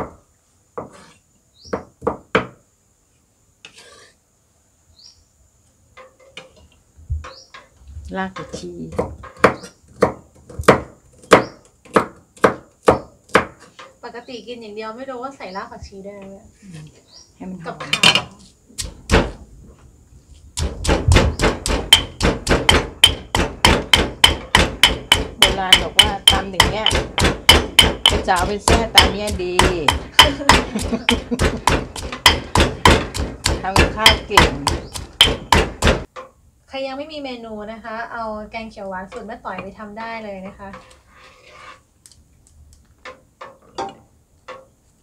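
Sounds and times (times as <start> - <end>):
blade scraping board: 0.8 - 1.2, 3.6 - 4.2, 40.6 - 41.9
cleaver chopping on wooden board: 8.9 - 13.6, 18.8 - 19.4, 20.6 - 36.1
stone pestle pounding in mortar: 18.8 - 19.4, 20.6 - 36.1.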